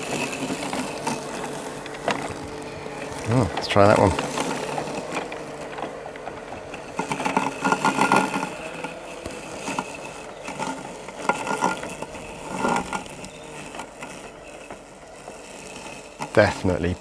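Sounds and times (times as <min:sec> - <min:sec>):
robotic lawnmower motor whine: 0:00.0 - 0:17.0.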